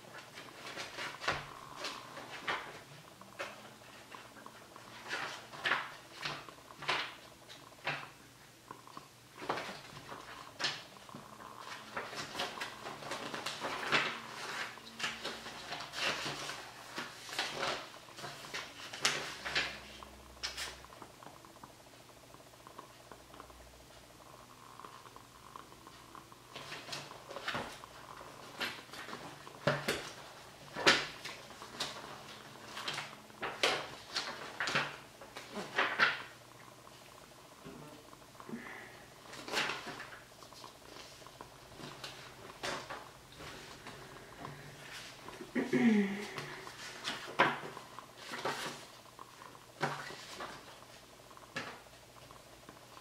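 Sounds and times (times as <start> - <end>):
book pages turning: 0.0 - 21.7, 24.6 - 37.2, 38.6 - 45.6, 46.2 - 53.0.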